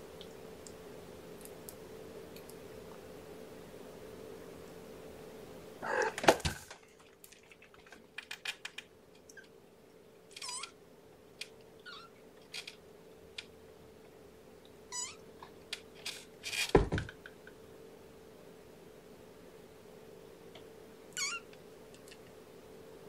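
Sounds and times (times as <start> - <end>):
faint steady hum: 0.0 - 23.0
kitten mewing: 5.8 - 6.2, 21.2 - 21.4.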